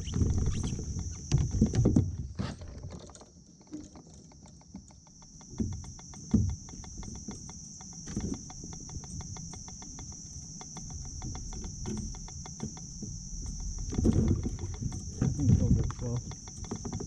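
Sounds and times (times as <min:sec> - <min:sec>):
high insect drone: 0:00.0 - 0:02.1, 0:03.5 - 0:17.0
rapid even ticking: 0:04.9 - 0:17.0.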